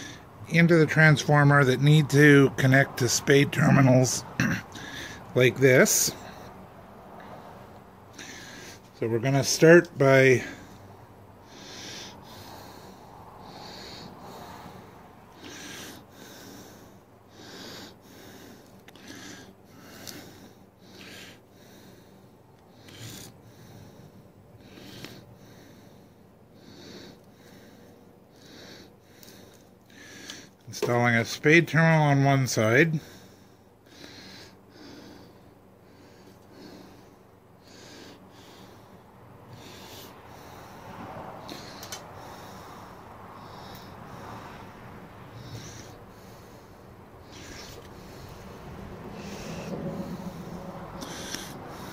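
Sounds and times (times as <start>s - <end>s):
person breathing: 0.0s - 0.4s, 4.7s - 5.3s, 7.2s - 9.0s, 10.4s - 30.6s, 32.9s - 51.9s
person breathing through nose: 33.0s - 51.9s.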